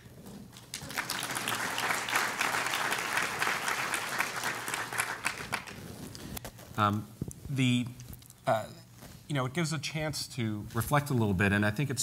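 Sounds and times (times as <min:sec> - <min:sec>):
audience applauding: 0:00.6 - 0:06.0.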